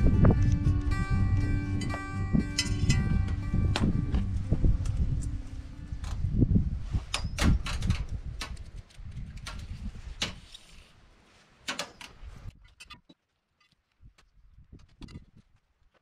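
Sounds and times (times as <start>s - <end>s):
low rumble: 0.0s - 7.0s.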